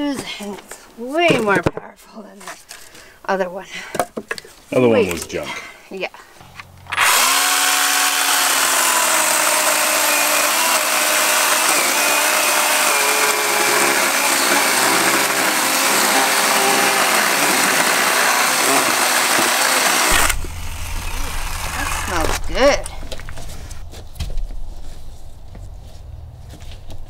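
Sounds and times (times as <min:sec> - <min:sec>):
chainsaw running: 0:06.9 - 0:22.9.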